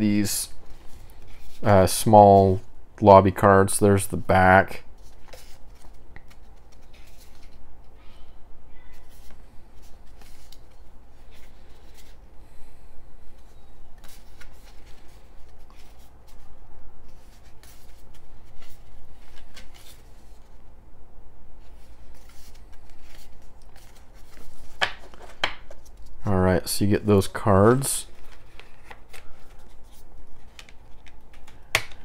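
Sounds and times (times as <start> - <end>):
cards rustling and flicking: 0.6 - 1.8, 5.0 - 7.6, 9.0 - 12.3, 13.3 - 20.6, 21.6 - 26.2, 27.2 - 32.0.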